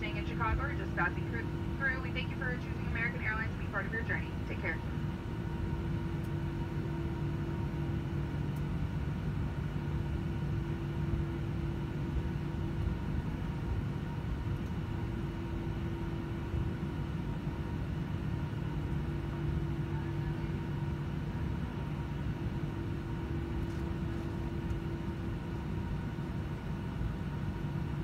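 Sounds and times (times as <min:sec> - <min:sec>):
faint high engine tone: 0:00.0 - 0:08.0, 0:18.7 - 0:25.6
jet engines idling in cabin: 0:00.0 - 0:28.0.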